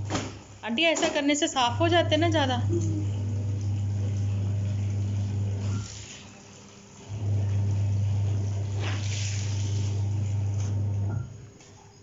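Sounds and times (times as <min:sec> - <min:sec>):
washing machine motor humming: 0:00.0 - 0:12.0
water splashing from wrung cloth: 0:03.2 - 0:11.0.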